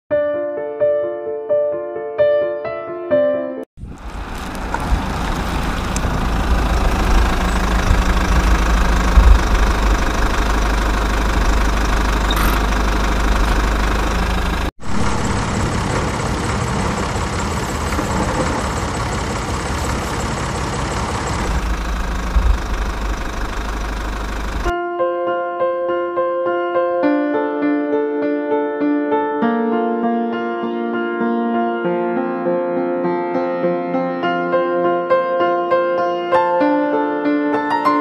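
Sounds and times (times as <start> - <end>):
engine rumbling: 3.8 - 24.7.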